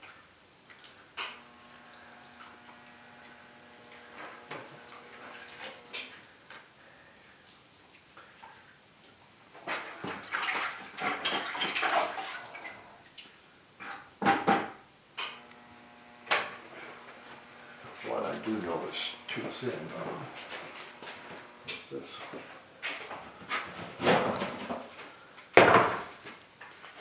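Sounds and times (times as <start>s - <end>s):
hand sloshing glaze in bucket: 9.6s - 12.8s
sharp splashes: 10.1s - 12.7s.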